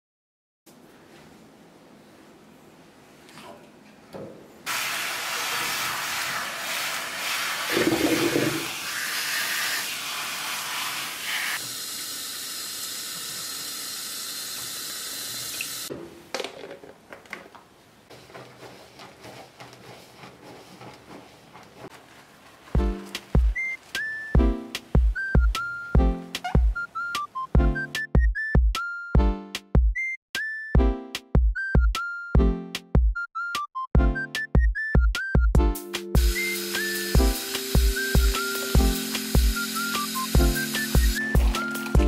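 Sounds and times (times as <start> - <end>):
shower sprayer water hissing: 4.7 - 15.9, 36.2 - 42.0
water splashing into tub: 7.6 - 8.8.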